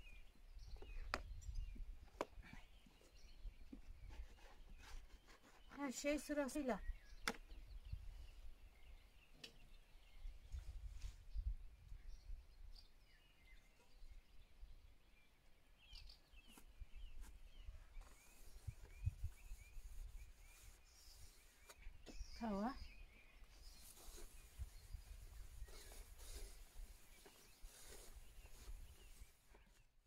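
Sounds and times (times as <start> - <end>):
wind rumble on microphone: 0.6 - 2.2, 10.2 - 12.8, 18.4 - 20.7
distant birds chirping: 11.9 - 30.0.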